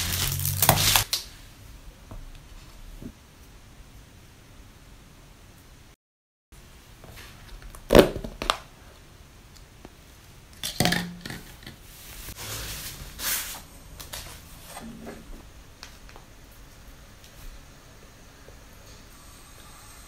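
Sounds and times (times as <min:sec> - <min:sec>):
plastic rustle: 0:00.0 - 0:01.2
plastic lid crackling and popping: 0:07.7 - 0:08.7.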